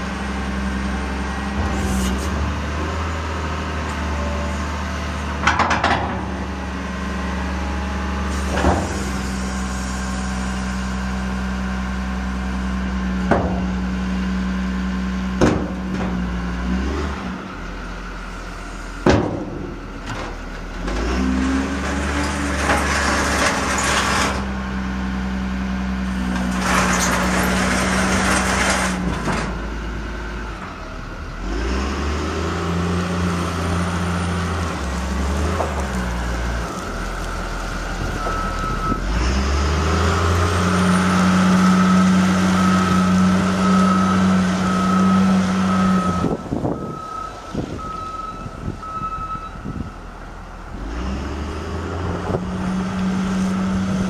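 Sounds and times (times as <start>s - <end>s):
loader diesel engine revving: 0.0s - 54.0s
thump: 15.4s - 16.2s, 19.0s - 20.2s.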